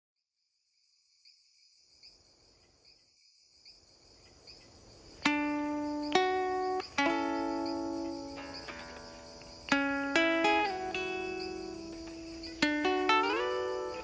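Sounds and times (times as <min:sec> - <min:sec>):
crickets chirping: 0:00.3 - 0:14.0
faint hiss: 0:00.7 - 0:14.0
plucked string notes: 0:05.2 - 0:14.0.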